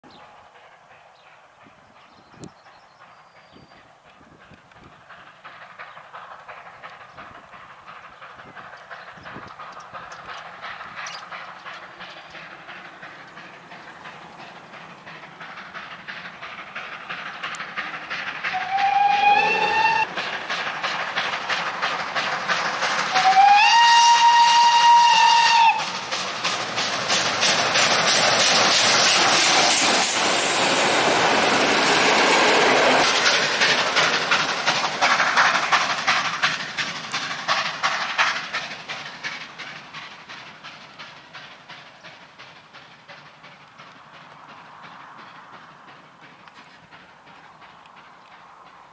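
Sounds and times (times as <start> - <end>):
steam locomotive exhaust beats: 0.0 - 48.9
steam whistle: 18.5 - 20.1, 23.1 - 25.9.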